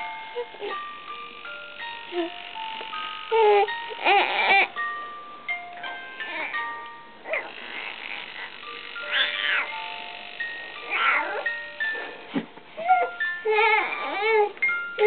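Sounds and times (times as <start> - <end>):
soft melody of held notes: 0.0 - 15.0
baby crying: 3.3 - 4.8, 7.2 - 8.3, 9.0 - 9.7, 10.8 - 11.5, 12.8 - 14.6.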